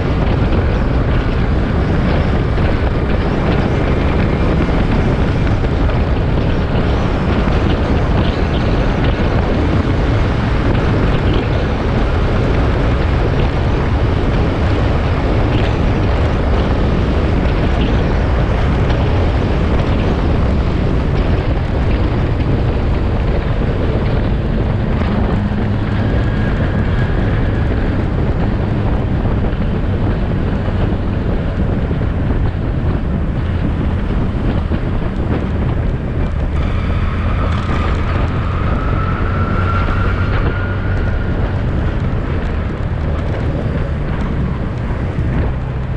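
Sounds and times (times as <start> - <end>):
motorcycle engine: 0.0 - 45.9
wind buffeting microphone: 0.0 - 45.9.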